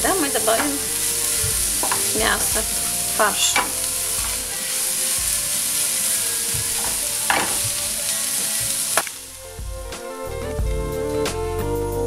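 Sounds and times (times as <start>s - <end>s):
vegetables sizzling in oil: 0.0s - 10.1s
background music: 0.0s - 12.0s
spatula scraping a pan: 0.1s - 9.1s.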